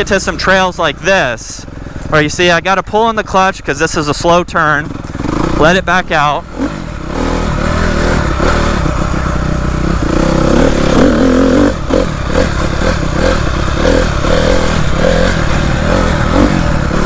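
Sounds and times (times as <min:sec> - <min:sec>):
dirt bike engine running: 0:00.0 - 0:17.0.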